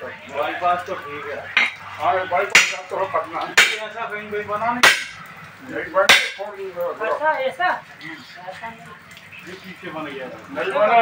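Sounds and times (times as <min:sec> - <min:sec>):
metallic strikes of tyre bar: 0:04.8 - 0:05.2.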